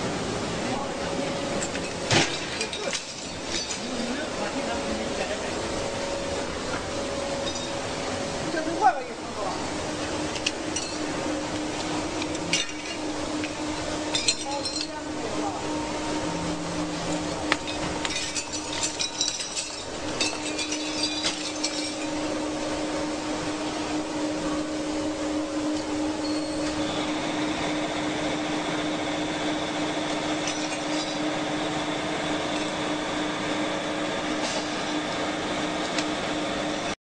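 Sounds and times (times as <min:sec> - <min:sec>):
faint high whine: 0:00.0 - 0:36.6
wire stripping machine motor hum: 0:00.0 - 0:37.0
metallic clinking and rattling: 0:17.6 - 0:22.2.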